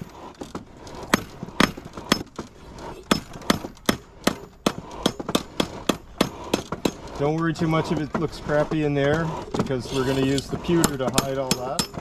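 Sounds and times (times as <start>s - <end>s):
hammer striking steel on anvil: 3.1s - 7.2s, 10.8s - 12.0s.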